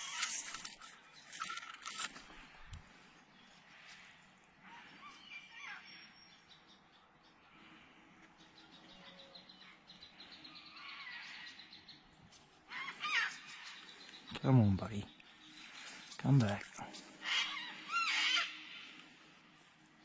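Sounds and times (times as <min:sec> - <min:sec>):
bush ambience: 0:00.0 - 0:05.0, 0:12.0 - 0:20.0
faint bird calls: 0:00.0 - 0:20.0.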